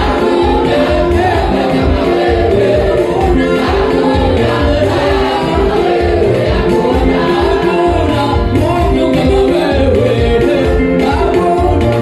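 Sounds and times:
band accompaniment: 0.0 - 12.0
group of voices singing: 0.0 - 12.0
steady bass beat: 0.0 - 12.0.

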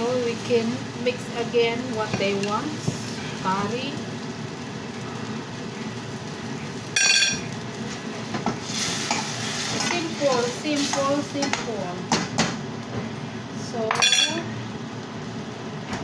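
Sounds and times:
food sizzling in a frying pan: 0.0 - 16.0
loud ringing clink: 7.0 - 7.5
utensil stirring in pan: 7.7 - 12.3.

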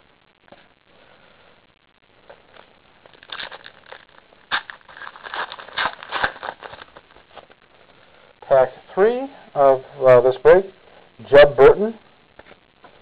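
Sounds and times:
wrapper crinkling and tearing: 2.5 - 7.5.

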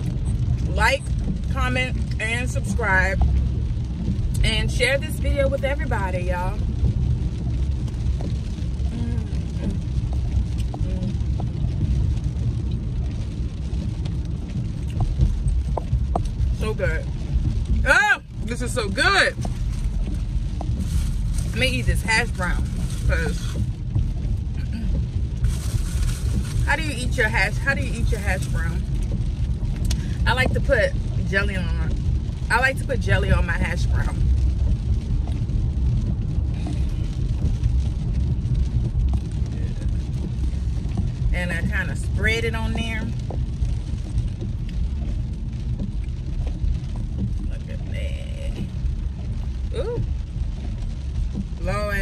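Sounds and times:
car engine rumble inside cabin: 0.0 - 52.0.

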